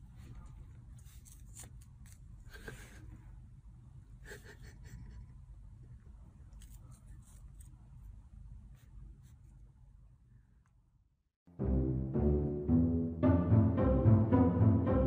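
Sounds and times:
low room hum: 0.0 - 11.3.

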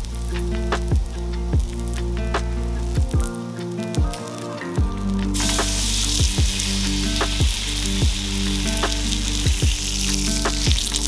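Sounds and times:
background music with steady beat: 0.0 - 11.0
steak sizzling on grill pan: 3.4 - 11.0.

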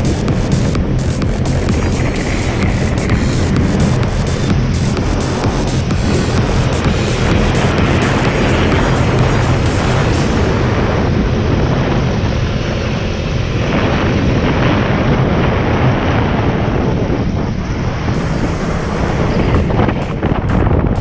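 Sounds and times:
wind buffeting microphone: 0.0 - 21.0
bright hiss: 18.2 - 21.0.

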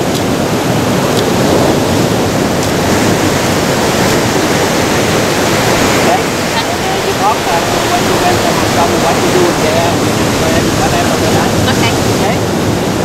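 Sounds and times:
ocean waves breaking over rocks: 0.0 - 13.0.

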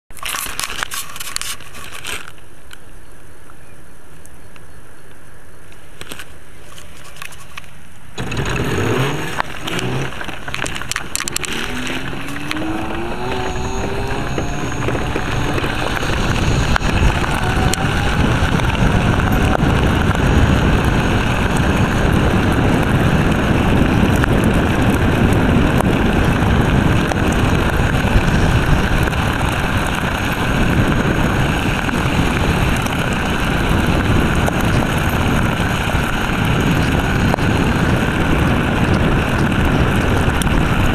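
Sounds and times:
wind: 0.0 - 40.9
tyres rumbling on gravel: 6.1 - 40.9
electric scooter motor whine: 8.2 - 40.9.

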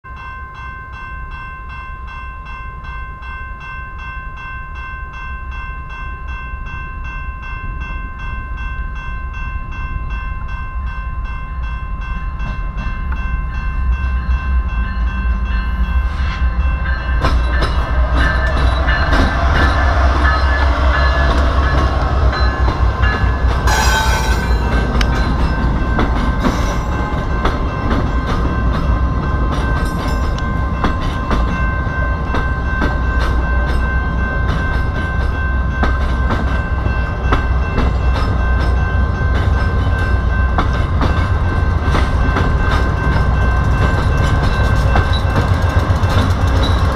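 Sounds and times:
level crossing bell ringing: 0.0 - 40.7
diesel locomotive rumble: 12.4 - 46.9
train wheels clicking on rails: 15.2 - 46.9.

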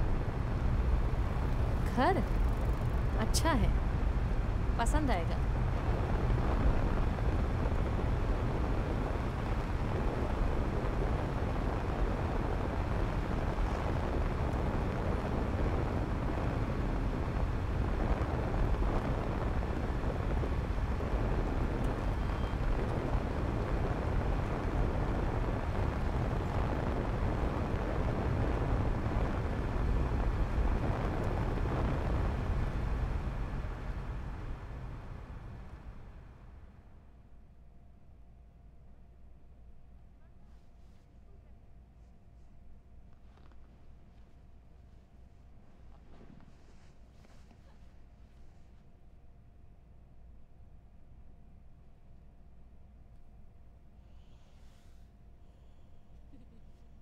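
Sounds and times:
car road and engine noise: 0.0 - 36.7.

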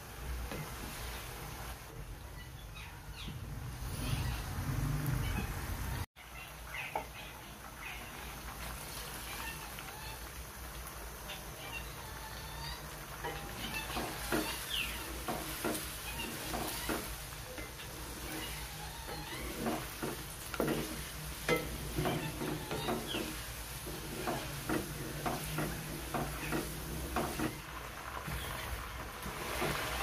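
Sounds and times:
chicken sizzling in oil: 0.0 - 1.9, 3.8 - 30.0
spatula knocking and scraping pan: 13.2 - 27.6.

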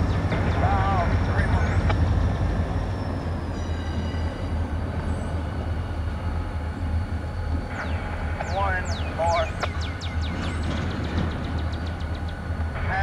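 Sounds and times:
locomotive engine rumble: 0.0 - 13.0.

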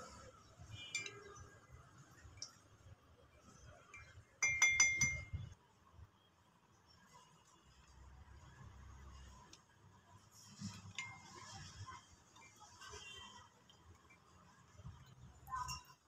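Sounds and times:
spoon clinking glass mug: 0.8 - 1.5, 4.0 - 5.6.

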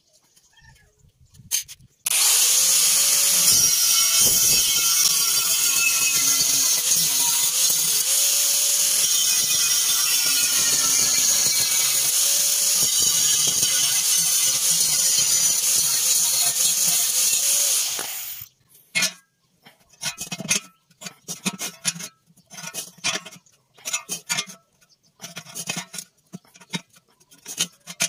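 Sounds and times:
angle grinder cutting steel: 2.1 - 18.5.

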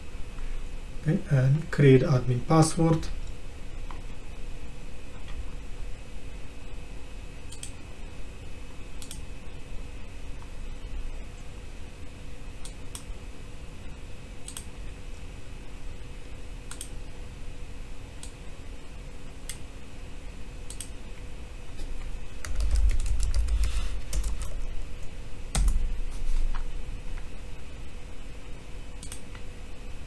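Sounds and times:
typing on computer keyboard: 22.4 - 24.6, 25.5 - 25.8.

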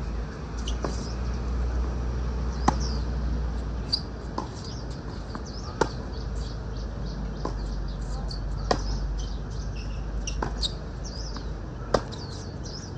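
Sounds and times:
birds chirping faintly: 0.4 - 1.8, 2.4 - 12.9
tennis ball bouncing: 0.6 - 1.8, 2.4 - 6.5, 7.3 - 9.6, 10.2 - 12.8
racket striking tennis ball: 2.5 - 3.0, 3.9 - 6.1, 8.6 - 9.0, 10.2 - 12.5.

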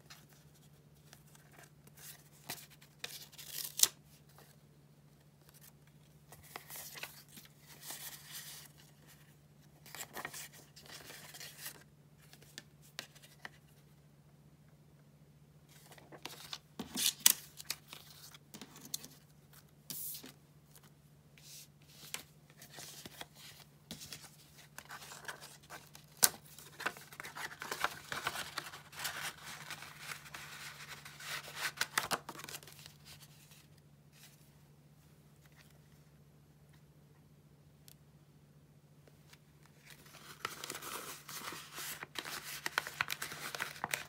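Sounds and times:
paper rustling and crinkling: 5.4 - 13.8, 15.7 - 34.4, 39.7 - 44.0.

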